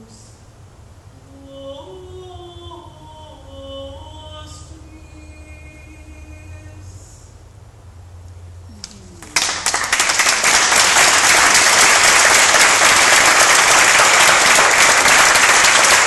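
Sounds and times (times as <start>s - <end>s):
audience applauding: 9.2s - 16.0s.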